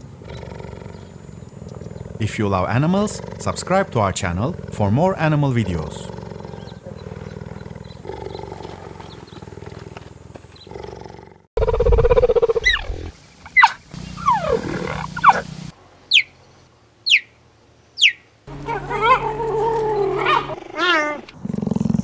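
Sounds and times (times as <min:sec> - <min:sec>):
cheetah growling: 0:00.0 - 0:10.1, 0:10.7 - 0:13.1, 0:14.2 - 0:15.4, 0:18.6 - 0:22.0
cheetah rumbling: 0:00.0 - 0:16.2
cheetah high chirps: 0:13.5 - 0:15.5, 0:16.1 - 0:16.3, 0:17.0 - 0:17.3.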